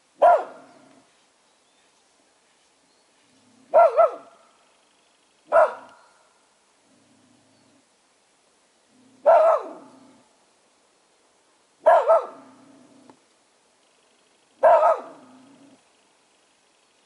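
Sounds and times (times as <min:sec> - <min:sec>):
dog barking: 0:00.2 - 0:00.7, 0:03.7 - 0:04.4, 0:05.5 - 0:06.0, 0:09.2 - 0:10.0, 0:11.8 - 0:12.5, 0:14.6 - 0:15.3
dog growling: 0:15.1 - 0:15.8.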